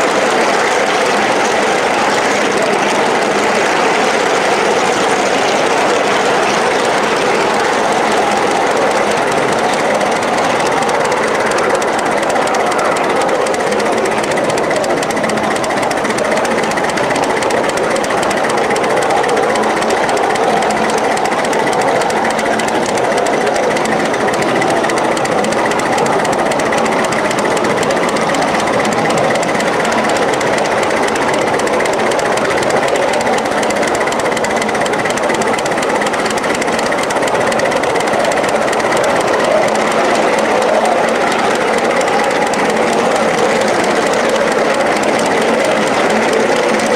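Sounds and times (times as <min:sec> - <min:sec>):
miniature steam locomotive clattering: 0:00.0 - 0:46.9.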